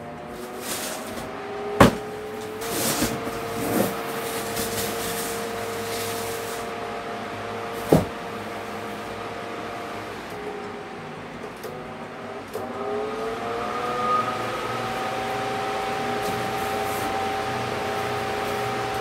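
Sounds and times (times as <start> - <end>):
fan motor hum and air rush: 0.0 - 19.0
box falling on floor: 0.6 - 5.2, 7.8 - 8.2.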